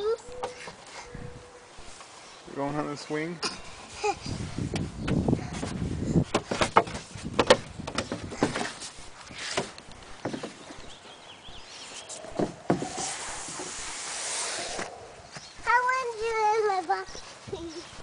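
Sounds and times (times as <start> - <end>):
knocks on wooden deck: 6.3 - 8.7, 12.4 - 13.0
soft hiss: 11.7 - 15.6.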